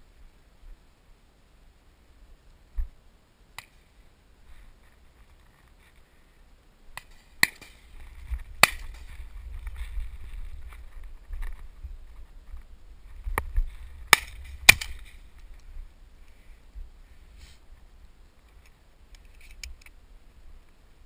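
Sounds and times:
sharp knocks or cracks: 14.1s - 15.1s.

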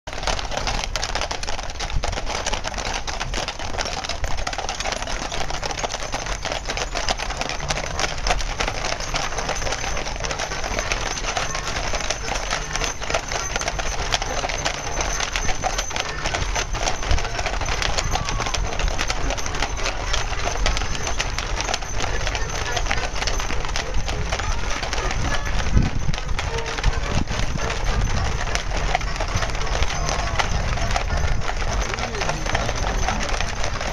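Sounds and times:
horse hooves on pavement: 0.1s - 33.9s.

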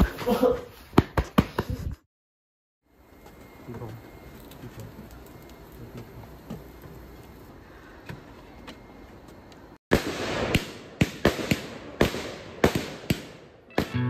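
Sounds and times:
fireworks bangs: 9.9s - 14.0s.

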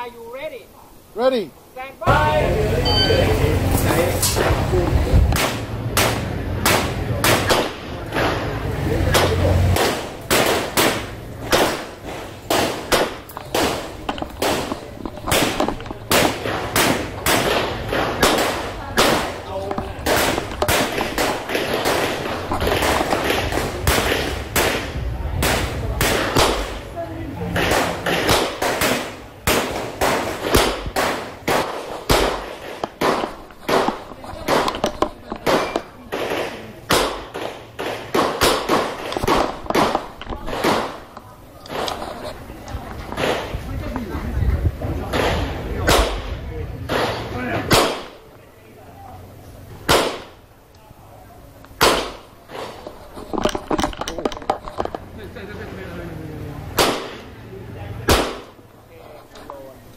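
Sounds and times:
revolver shots with echo: 51.8s - 52.3s, 58.1s - 58.6s.

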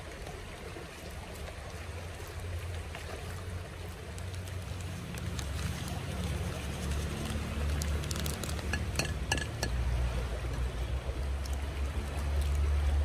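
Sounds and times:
clink on glass: 8.7s - 9.8s.

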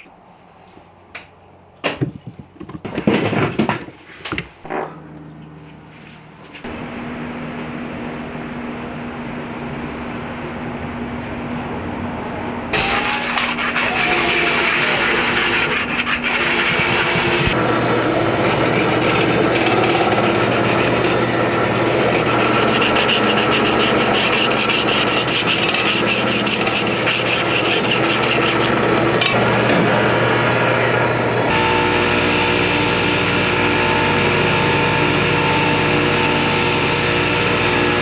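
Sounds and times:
steady hum with tones: 4.4s - 38.0s
file rasping over handle: 12.8s - 17.6s, 18.2s - 29.4s.

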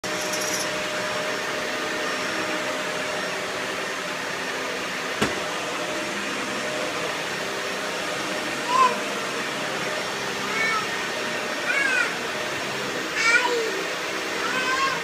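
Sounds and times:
toy vacuum cleaner motor whir: 0.1s - 0.8s.

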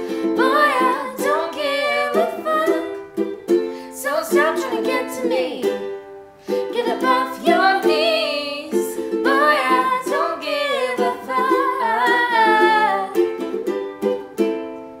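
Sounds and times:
women singing: 0.0s - 3.1s, 3.8s - 5.9s, 6.6s - 13.3s
ukulele strumming chords: 0.0s - 15.0s.

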